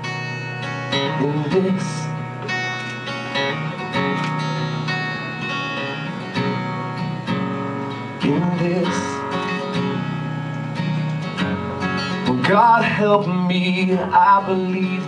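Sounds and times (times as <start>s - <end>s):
acoustic guitar strumming: 0.0s - 15.0s
person singing: 1.0s - 2.2s, 12.1s - 15.0s.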